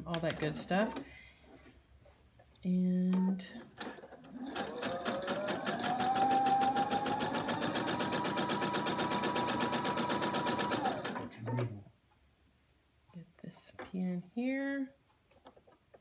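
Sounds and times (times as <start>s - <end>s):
sewing machine motor whine: 4.3s - 11.3s.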